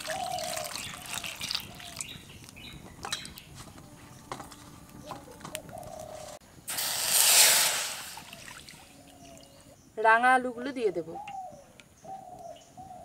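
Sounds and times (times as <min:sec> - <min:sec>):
water splashing into pot: 0:00.0 - 0:02.6, 0:06.7 - 0:09.0.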